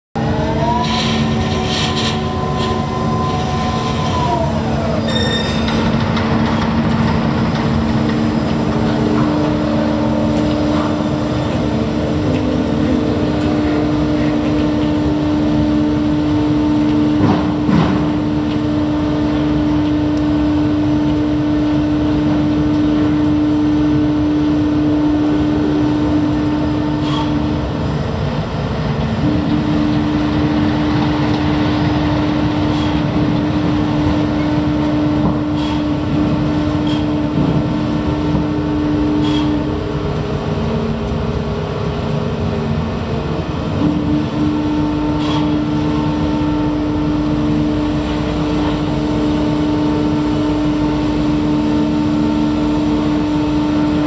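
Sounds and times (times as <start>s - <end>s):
crane hoist machinery humming: 0.2s - 54.0s
high whine: 0.2s - 54.0s.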